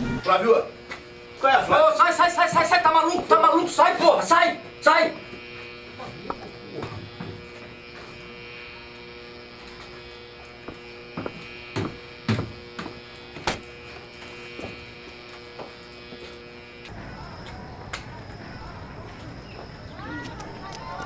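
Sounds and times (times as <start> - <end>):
electrical buzz: 0.0 - 21.0
knocks on wooden stairs: 10.7 - 13.0.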